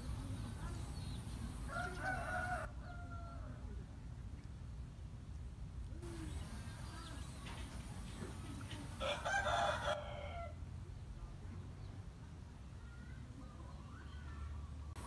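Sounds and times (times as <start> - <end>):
rooster crowing: 1.7 - 3.5, 9.0 - 10.6.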